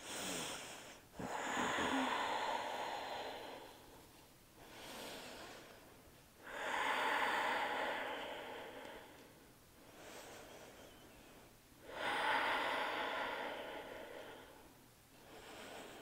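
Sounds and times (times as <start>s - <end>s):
woman breathing deeply: 0.0s - 16.0s.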